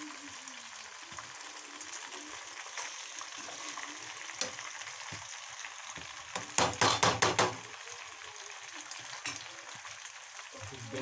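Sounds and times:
food sizzling in a pan: 0.0 - 11.0
spoon stirring and scraping pan: 1.1 - 7.6, 8.9 - 10.0.

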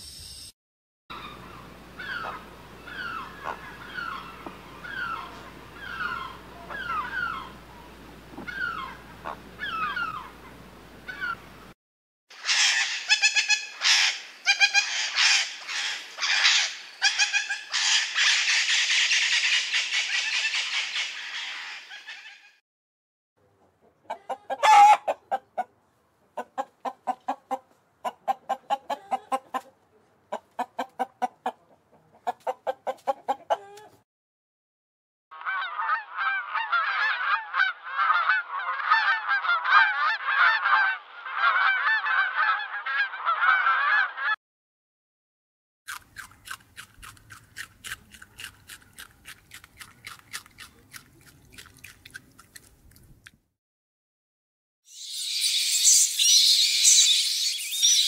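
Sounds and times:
rapid pulsed animal calls: 54.9 - 58.0.

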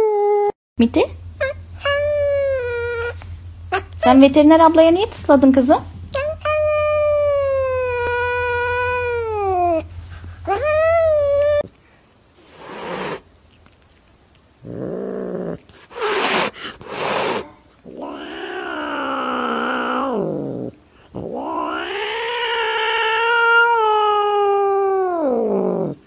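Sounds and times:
cat yowling: 6.2 - 9.8, 14.9 - 26.0.

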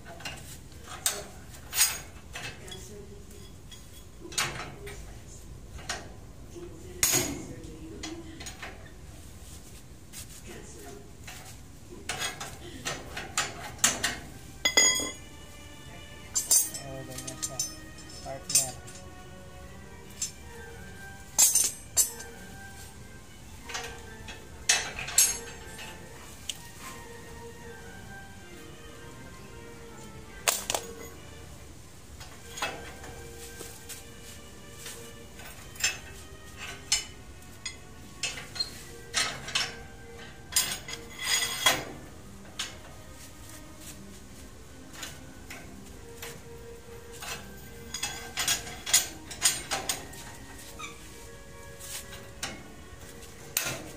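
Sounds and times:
faint background music: 0.0 - 53.9
steel rebar clinking on metal: 0.2 - 2.8, 12.1 - 15.3, 16.3 - 19.2, 21.2 - 22.4, 23.6 - 26.1, 30.4 - 31.2, 35.4 - 43.0, 47.1 - 51.0, 53.5 - 53.9.

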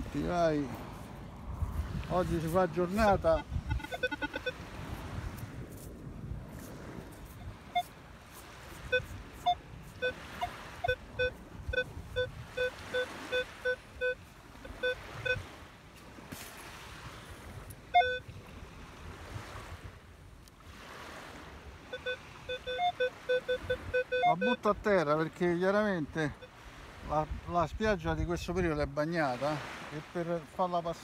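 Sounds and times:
metal detector beeping: 2.4 - 4.8, 7.0 - 15.5, 17.6 - 18.4, 21.8 - 24.8, 26.3 - 26.6.

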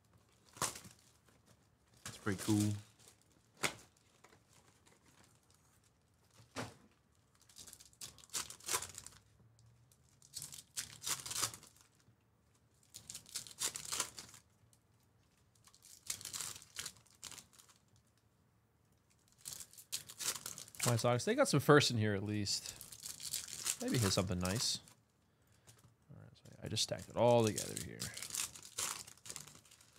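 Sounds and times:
foil wrappers tearing and crinkling: 0.3 - 6.0, 7.3 - 9.3, 10.0 - 12.0, 12.8 - 14.4, 15.6 - 17.9, 19.2 - 21.0, 22.6 - 25.0, 26.7 - 29.9.

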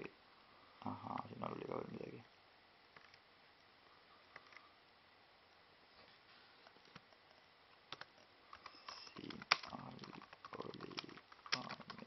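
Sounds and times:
laptop keyboard typing: 3.0 - 3.2, 4.4 - 4.6, 7.9 - 12.0.

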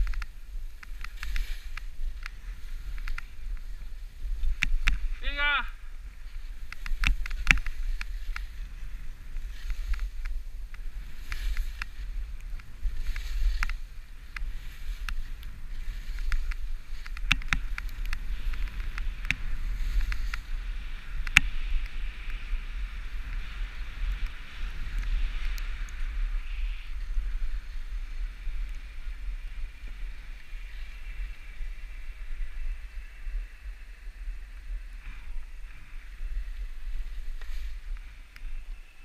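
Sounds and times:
skis sliding on packed snow: 0.0 - 39.0.

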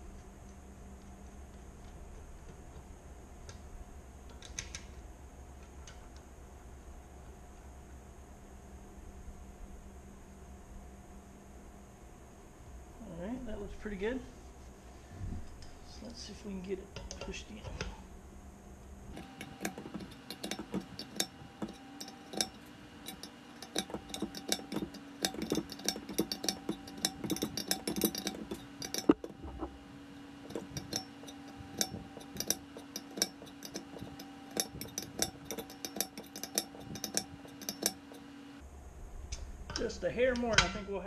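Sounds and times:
steady low hum: 0.0 - 41.0
wrench metal clicks and clinks: 19.1 - 29.8, 30.4 - 38.3.

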